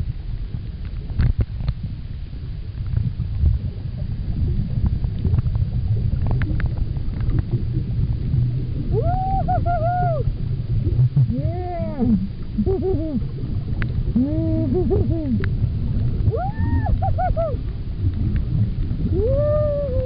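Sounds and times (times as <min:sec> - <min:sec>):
low underwater rumble: 0:00.0 - 0:20.0
humpback whale song: 0:07.9 - 0:20.0.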